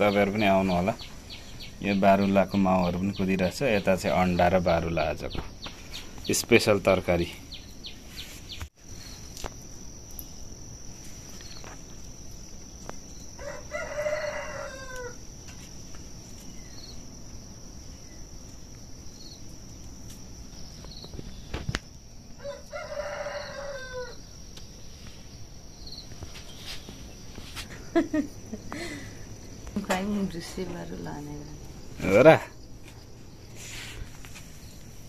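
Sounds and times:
high insect drone: 0:00.0 - 0:35.0
rooster crowing: 0:13.4 - 0:15.3, 0:22.4 - 0:24.4.

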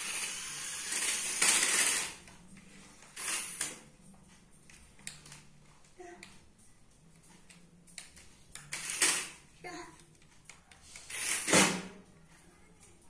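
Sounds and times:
toy car motor whirring: 0:00.0 - 0:02.2, 0:03.2 - 0:03.8, 0:08.7 - 0:09.4, 0:10.9 - 0:11.6.

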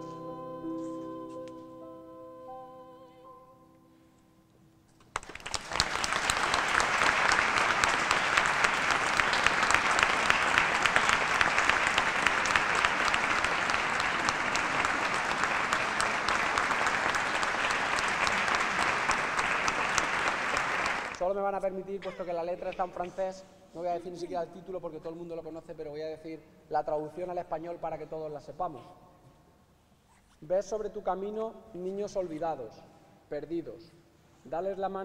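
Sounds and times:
audience applause: 0:05.1 - 0:21.2.

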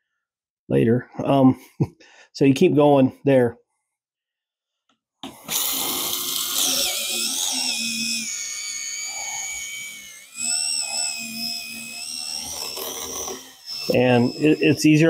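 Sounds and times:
small electric motor whining: 0:05.2 - 0:15.0.

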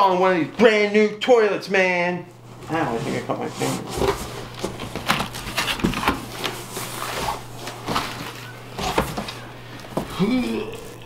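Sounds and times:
steady low hum: 0:00.0 - 0:11.0
cardboard rustling and scraping: 0:02.5 - 0:10.1.

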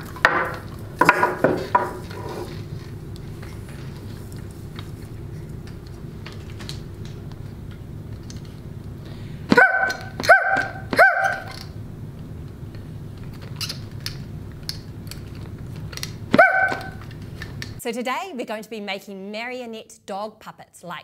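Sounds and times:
dog barks: 0:09.5 - 0:11.6, 0:16.3 - 0:17.0.

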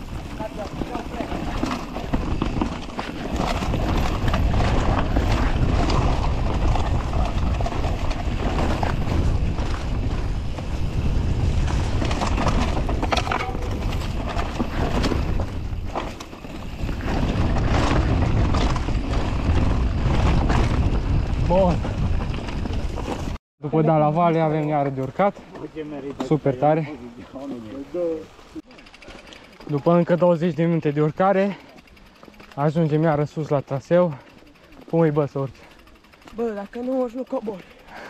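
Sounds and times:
bike knocks and rattles: 0:00.0 - 0:23.4
wind rumbling on microphone: 0:00.0 - 0:23.4.

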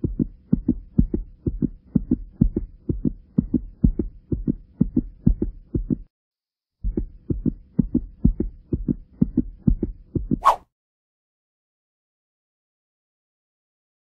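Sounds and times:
heartbeat thumps: 0:00.0 - 0:06.1, 0:06.8 - 0:10.5.

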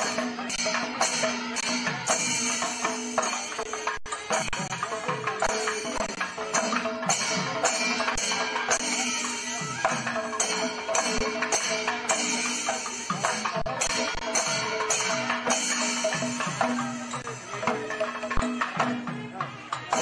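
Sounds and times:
percussion music with drums: 0:00.0 - 0:20.0.

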